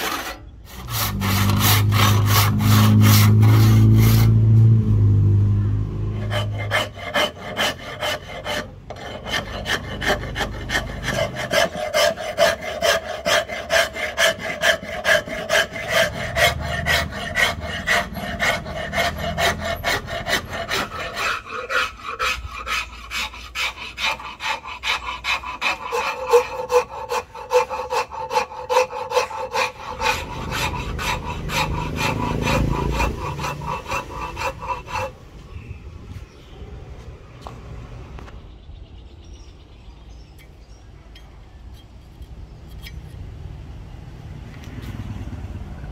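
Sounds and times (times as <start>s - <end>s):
hand rasp scraping wood: 0.0s - 4.8s, 6.1s - 35.2s.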